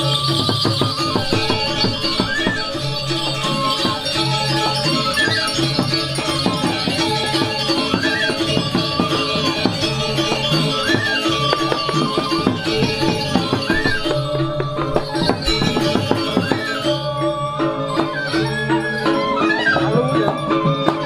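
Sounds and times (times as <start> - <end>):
fast hand drumming: 0.0 - 16.9
bamboo flute: 0.0 - 21.0
metallophones ringing: 0.0 - 21.0.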